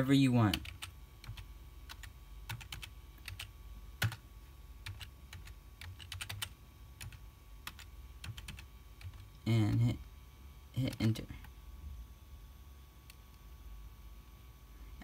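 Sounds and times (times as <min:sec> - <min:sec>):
computer keyboard typing: 0:00.5 - 0:04.2, 0:04.8 - 0:09.9, 0:10.8 - 0:11.5.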